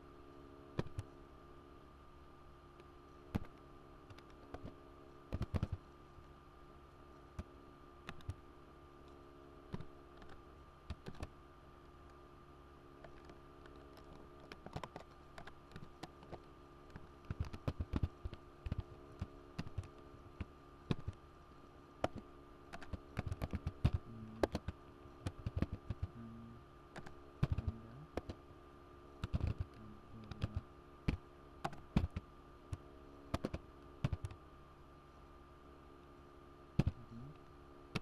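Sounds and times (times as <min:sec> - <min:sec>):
faint steady hum: 0:00.0 - 0:38.0
computer keyboard clicks: 0:05.3 - 0:05.8, 0:08.1 - 0:08.4, 0:13.0 - 0:21.2, 0:22.0 - 0:26.1, 0:27.0 - 0:28.4, 0:29.2 - 0:34.4, 0:36.8 - 0:37.0.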